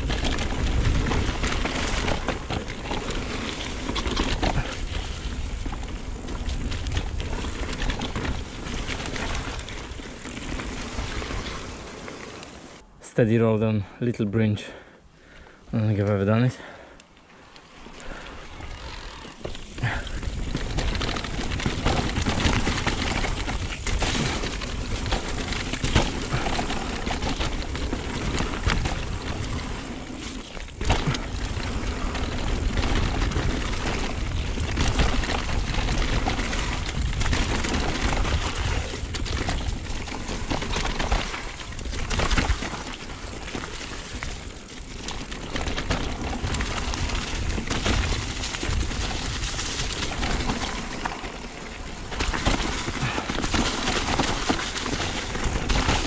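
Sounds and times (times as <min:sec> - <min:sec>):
bike knocking and rattling: 0:00.0 - 0:12.8, 0:17.4 - 0:56.0
bike tyres rushing on soil: 0:00.0 - 0:12.8, 0:15.2 - 0:56.0.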